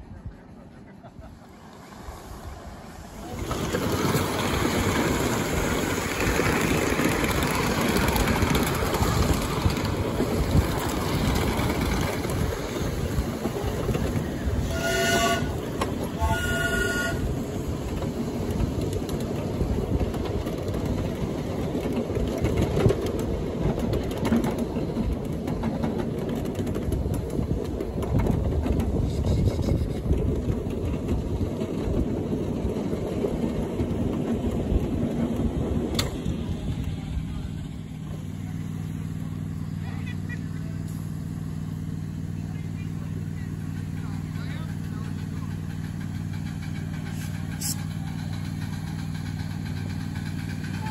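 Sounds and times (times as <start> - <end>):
miniature train rumbling on track: 0.0 - 50.9
train whistle blasts: 14.6 - 17.4.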